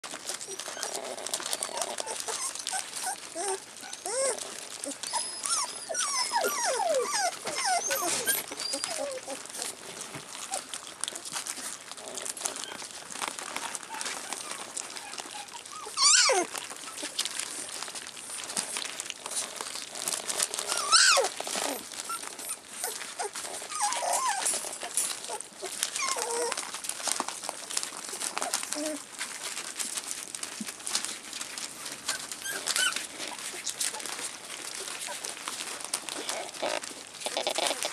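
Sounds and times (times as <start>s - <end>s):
newspaper crinkling: 0.0s - 37.9s
puppies lapping food: 0.0s - 37.9s
puppy whimpers: 0.1s - 37.9s
puppy squealing: 0.4s - 9.8s, 13.5s - 17.2s, 20.6s - 26.6s, 32.1s - 34.3s, 36.1s - 37.9s.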